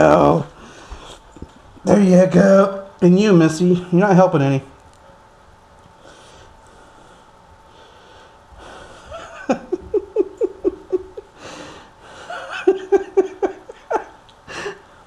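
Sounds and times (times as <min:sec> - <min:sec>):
breathing: 0:00.6 - 0:01.2, 0:06.0 - 0:09.2, 0:11.4 - 0:12.3, 0:14.5 - 0:15.0.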